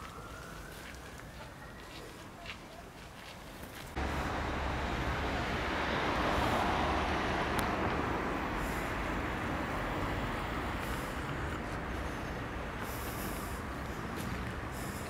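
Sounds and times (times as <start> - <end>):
low traffic rumble: 0.0 - 15.0
passing road vehicle rushing: 3.9 - 15.0.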